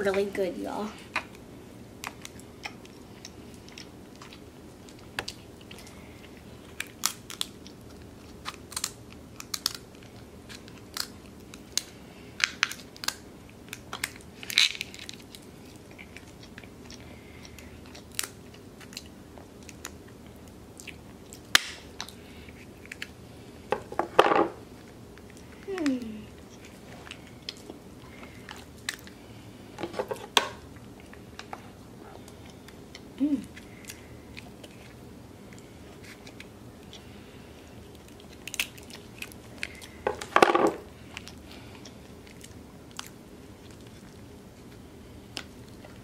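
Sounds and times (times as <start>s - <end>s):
chewing: 2.0s - 12.0s, 12.6s - 23.2s, 24.8s - 29.4s, 30.7s - 40.3s, 40.9s - 46.0s
crab shells cracking: 6.6s - 16.8s, 17.4s - 20.1s, 38.0s - 43.1s.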